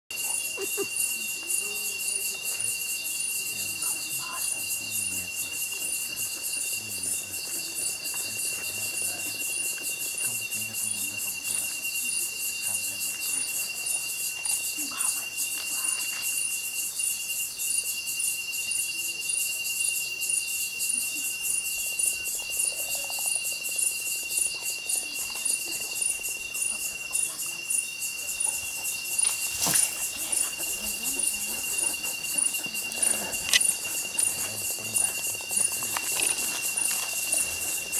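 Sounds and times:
insect trill: 0:00.1 - 0:37.9
high insect buzzing: 0:21.8 - 0:37.9.

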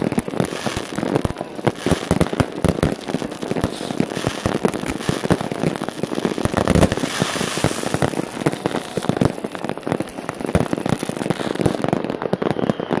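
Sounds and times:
fireworks bangs and crackling: 0:00.0 - 0:13.0.

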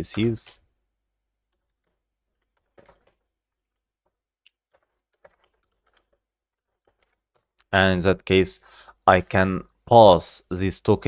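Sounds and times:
faint keyboard keystrokes: 0:01.5 - 0:07.7.

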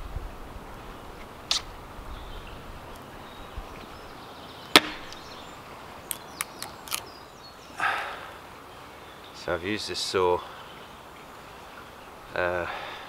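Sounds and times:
hatchet chopping log: 0:04.7 - 0:05.1.

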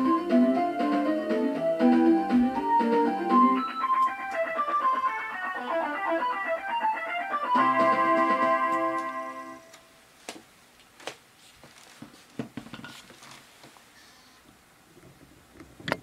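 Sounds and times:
guitar music: 0:00.0 - 0:09.8.

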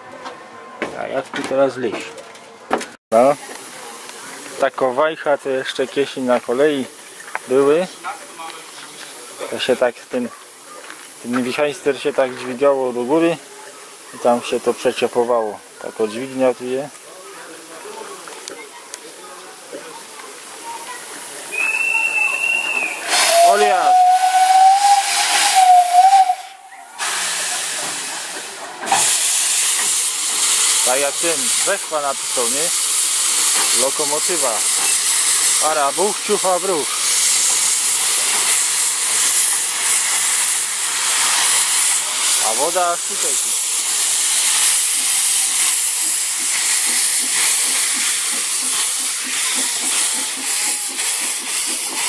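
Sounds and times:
hissing steam: 0:03.2 - 0:52.0
steam locomotive whistle: 0:21.5 - 0:27.2.

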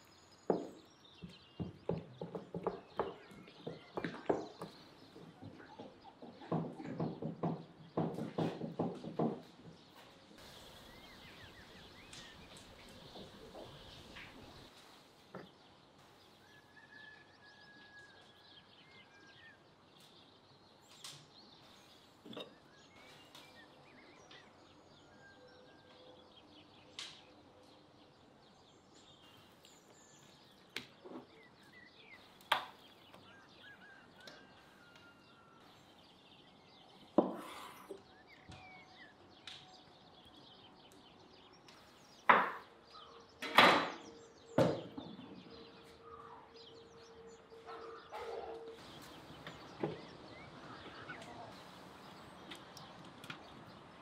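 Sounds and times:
faint bird chirps: 0:09.9 - 0:52.9.

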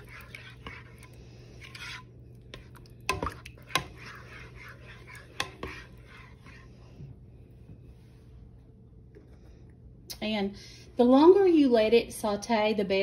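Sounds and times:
spoon stirring thick food in pot: 0:00.0 - 0:07.2.

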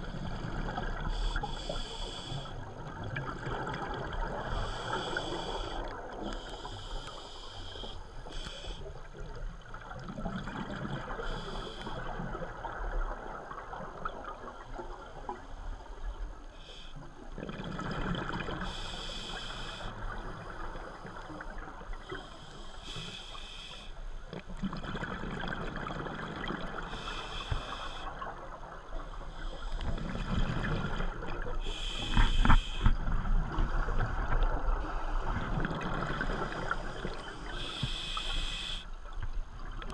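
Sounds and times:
exhaled bubbles hissing: 0:00.0 - 0:39.0
low rumble of water: 0:00.0 - 0:39.9
diver breathing through regulator: 0:04.5 - 0:08.9, 0:18.6 - 0:24.0, 0:26.8 - 0:28.2, 0:31.6 - 0:33.0, 0:34.8 - 0:38.9.

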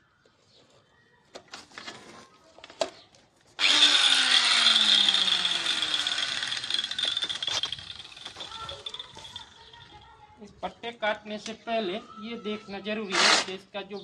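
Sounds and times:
tile cutter high whine: 0:03.6 - 0:08.3.

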